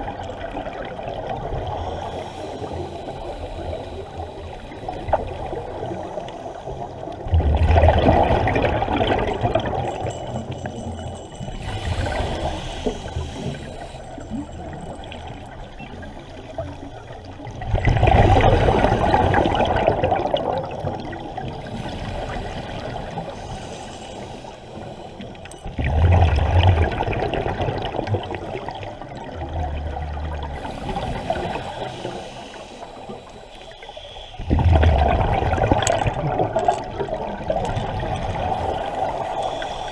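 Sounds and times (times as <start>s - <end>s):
underwater exhaled air bubbling: 0.0s - 39.9s
hissing regulator breaths: 1.7s - 7.1s, 9.9s - 17.4s, 21.6s - 25.7s, 30.4s - 35.0s, 39.1s - 39.9s.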